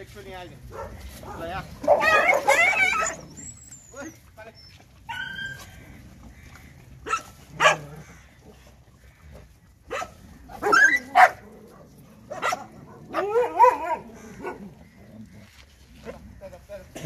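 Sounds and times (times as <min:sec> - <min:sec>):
dogs barking and yelping: 0:00.7 - 0:06.0, 0:07.0 - 0:08.7, 0:09.8 - 0:15.0.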